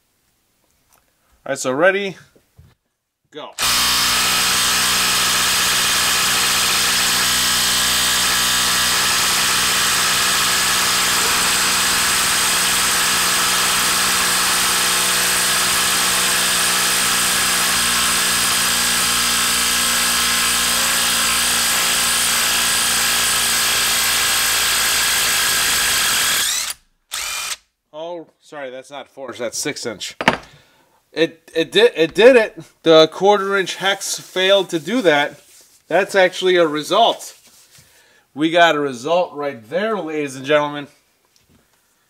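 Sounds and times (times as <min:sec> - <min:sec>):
impact wrench hammering: 0:03.6 - 0:27.6, 0:30.2 - 0:30.5.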